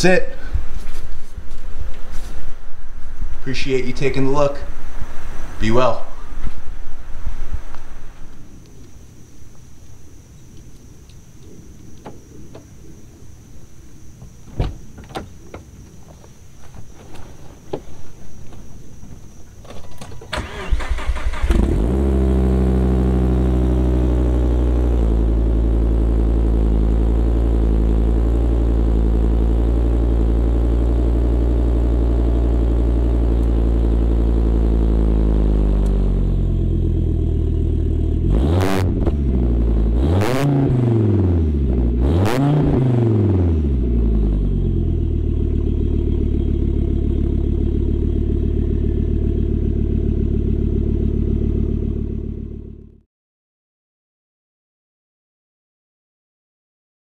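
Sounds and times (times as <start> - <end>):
car engine starting and idling: 16.6 - 53.0
car engine revving: 20.4 - 53.0.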